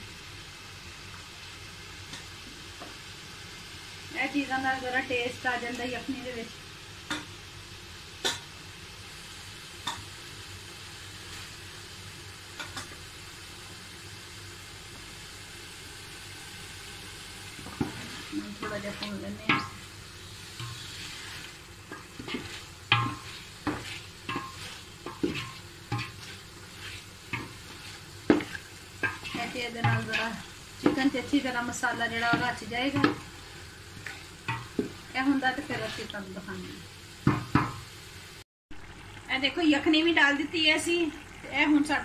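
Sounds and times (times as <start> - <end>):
chicken sizzling in a pot: 0.0 - 42.0
wooden spoon knocking on pot: 22.2 - 26.3, 28.3 - 31.3, 32.2 - 33.3, 37.2 - 37.8.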